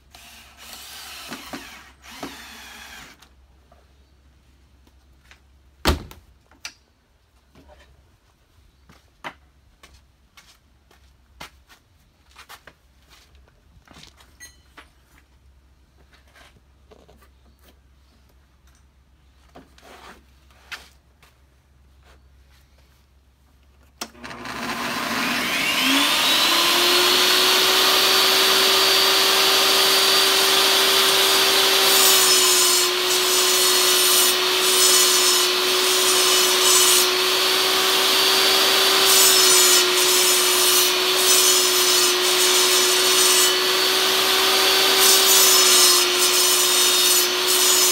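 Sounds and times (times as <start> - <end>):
saw cutting wood: 0.0 - 3.2, 24.0 - 47.9
table saw motor whine: 24.1 - 47.9.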